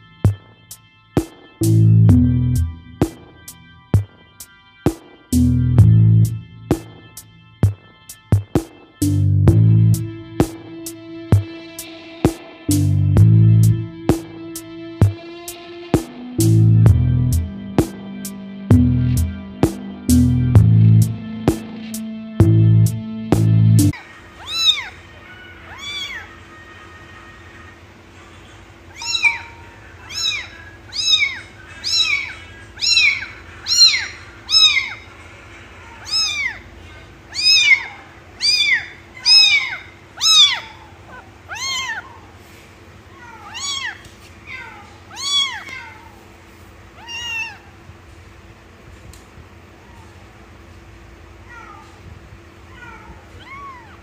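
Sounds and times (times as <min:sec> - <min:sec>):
kitten mewing: 0:24.3 - 0:26.4, 0:28.9 - 0:35.1, 0:35.8 - 0:42.3, 0:43.1 - 0:46.2, 0:47.0 - 0:47.8, 0:52.7 - 0:54.0.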